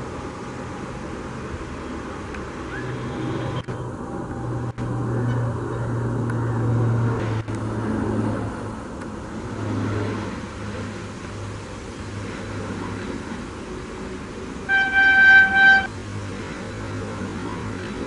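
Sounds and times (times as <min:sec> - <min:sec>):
electric locomotive approaching: 0:00.0 - 0:18.0.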